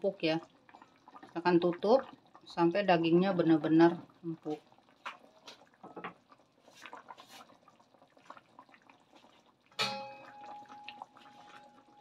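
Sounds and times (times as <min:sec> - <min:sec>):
broth simmering and bubbling: 0:00.0 - 0:12.0
metal lid clanging on wok: 0:09.8 - 0:10.3.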